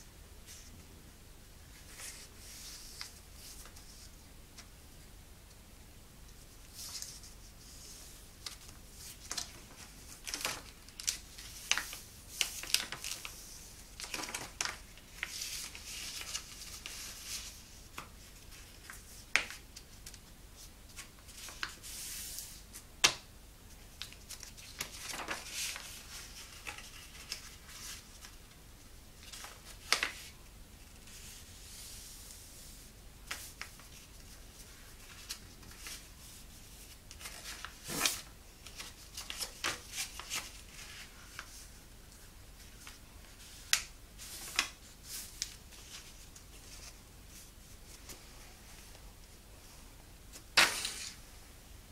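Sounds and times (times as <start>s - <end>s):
paper rustling and crinkling: 6.6s - 22.8s, 23.9s - 28.5s, 29.2s - 31.9s, 33.2s - 49.0s, 50.3s - 51.2s.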